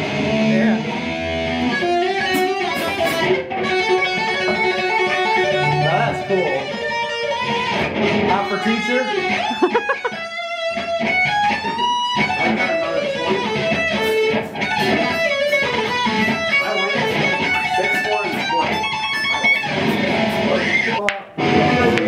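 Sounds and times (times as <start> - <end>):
electric guitar lead: 0.0 - 22.0.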